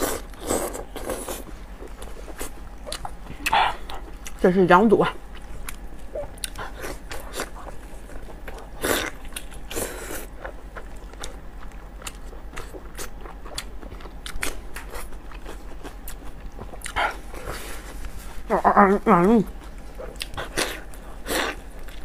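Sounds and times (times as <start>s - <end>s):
chewing mouth clicks: 5.4s - 7.7s.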